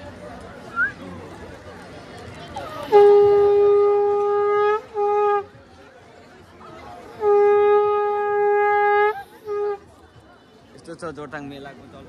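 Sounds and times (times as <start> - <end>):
horn blowing: 2.8 - 5.6, 7.1 - 9.9.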